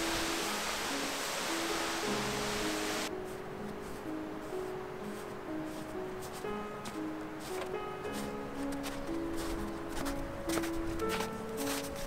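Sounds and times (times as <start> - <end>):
waterfall rushing: 0.0 - 3.1
music of slow held notes: 0.0 - 12.0.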